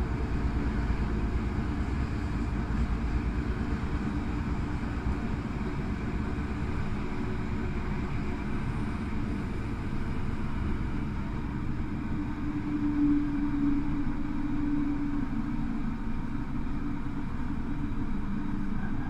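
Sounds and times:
train rumbling on track: 0.0s - 19.0s.

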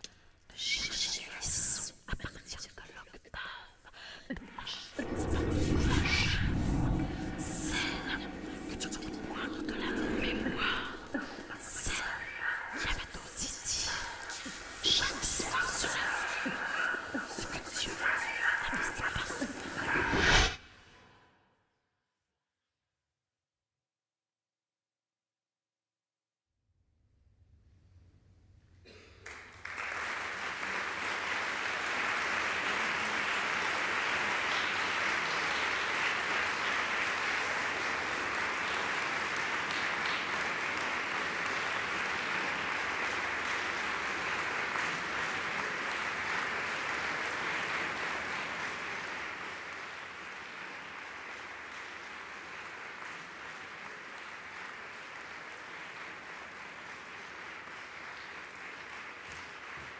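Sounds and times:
audience applauding: 29.2s - 59.9s.

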